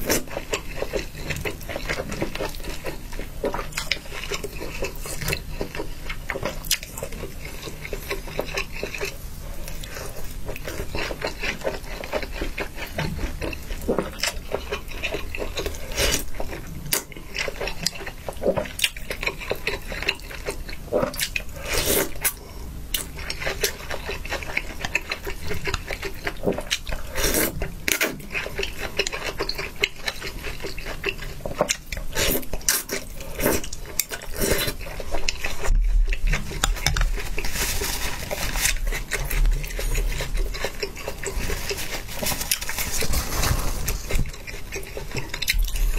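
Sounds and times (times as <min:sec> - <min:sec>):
wet chewing and slurping: 0:00.0 - 0:45.9
paper napkin rustling: 0:37.0 - 0:39.4, 0:41.4 - 0:44.2.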